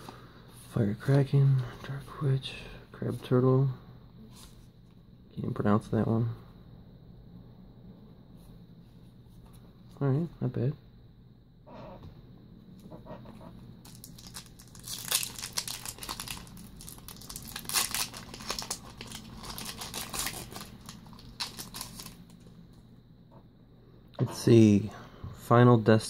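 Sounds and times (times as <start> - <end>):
foil wrapper crinkling and tearing: 13.8 - 22.4.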